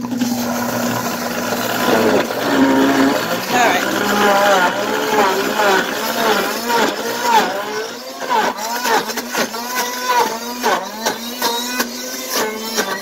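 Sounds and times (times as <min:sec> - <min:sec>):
blender motor grinding frozen fruit: 0:00.0 - 0:13.0.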